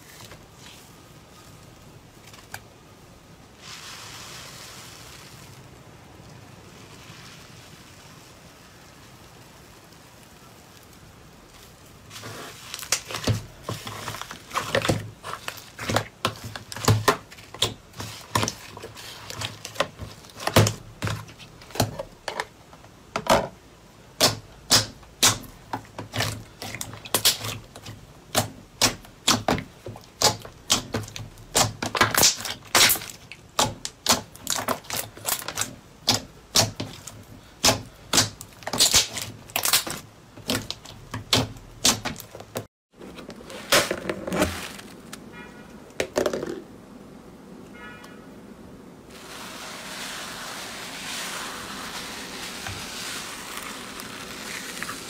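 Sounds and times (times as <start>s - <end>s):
faint hiss: 0.0s - 25.7s, 46.6s - 55.0s.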